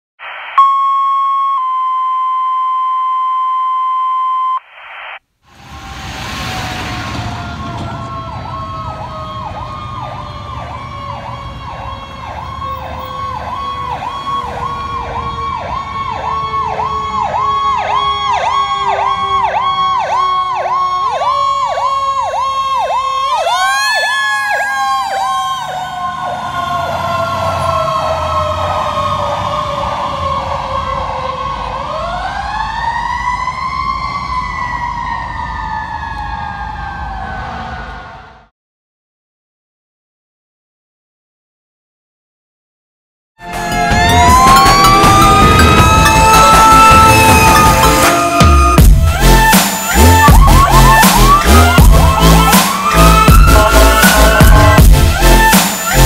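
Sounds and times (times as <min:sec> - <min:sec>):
electronic siren rising and falling: 0:00.2 - 0:38.5, 0:43.4 - 0:56.0
two-tone alert: 0:00.6 - 0:04.6.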